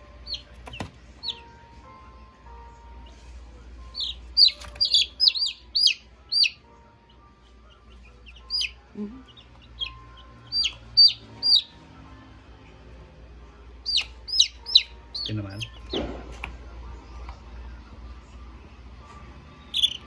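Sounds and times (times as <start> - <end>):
chicks peeping: 0.0 - 1.8, 3.0 - 11.9, 13.8 - 17.4, 19.5 - 20.0.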